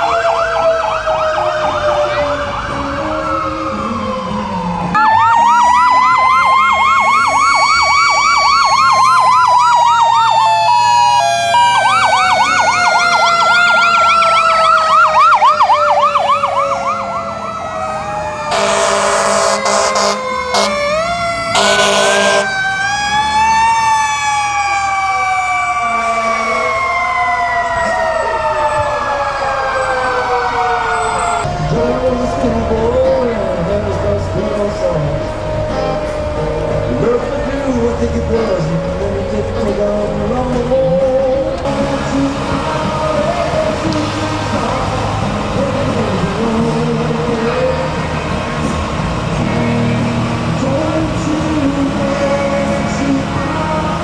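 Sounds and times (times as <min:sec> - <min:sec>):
fire truck sirens wailing: 0:00.0 - 0:54.0
loud horn blasts: 0:18.5 - 0:22.5.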